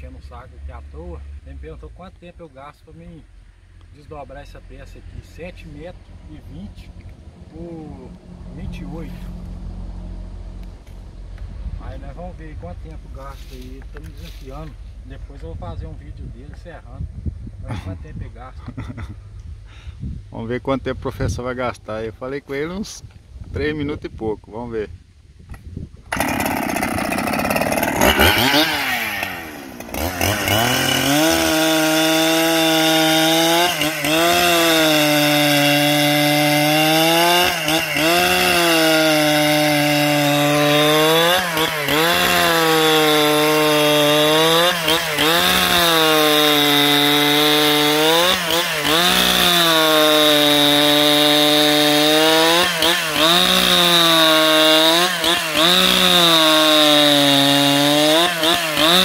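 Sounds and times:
chainsaw cutting a log: 0:26.1 - 0:59.0.

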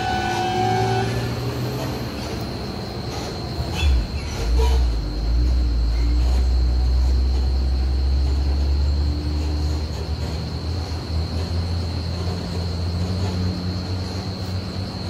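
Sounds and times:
thin high whine: 0:00.0 - 0:15.0
truck diesel engine drone: 0:00.0 - 0:15.0.

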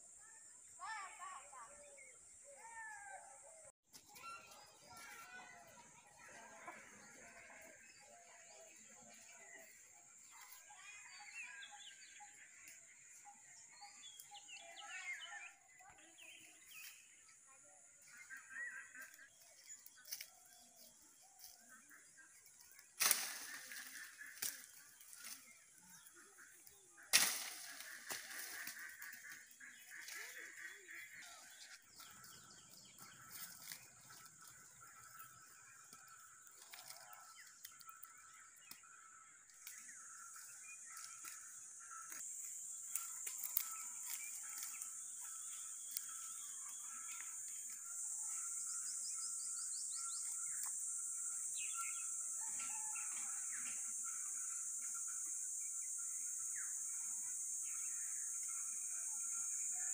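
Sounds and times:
birds chirping: 0:00.0 - 0:59.9
rustle of leaves: 0:18.9 - 0:35.5, 0:39.5 - 0:59.9
pole knocking branches: 0:27.1 - 0:29.4
high insect drone: 0:39.8 - 0:59.9.

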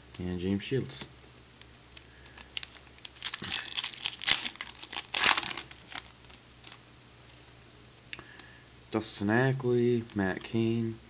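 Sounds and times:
foil wrapper crinkling and tearing: 0:02.2 - 0:06.8.

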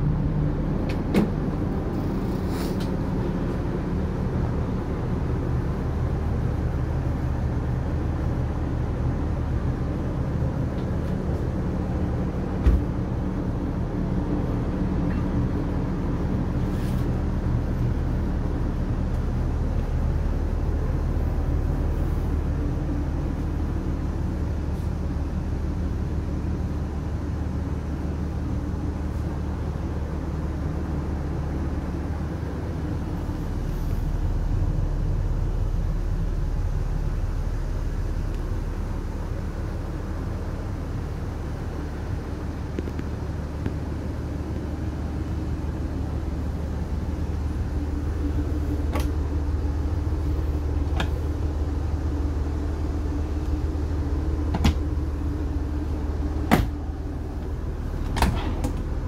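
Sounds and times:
low machine hum: 0:00.0 - 0:59.0
rumble: 0:00.0 - 0:59.0
cabinet door latch clicks: 0:54.5 - 0:54.8.

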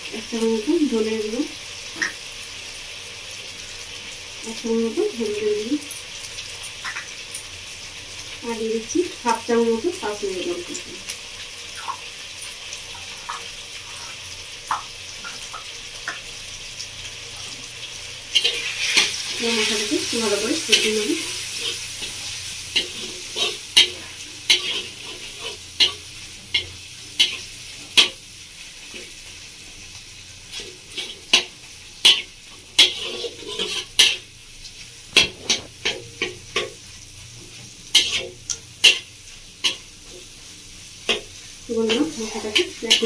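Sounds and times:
food sizzling in hot oil: 0:00.0 - 0:43.0
metal spatula scraping pan: 0:18.4 - 0:28.2, 0:30.5 - 0:34.3, 0:35.1 - 0:36.8.

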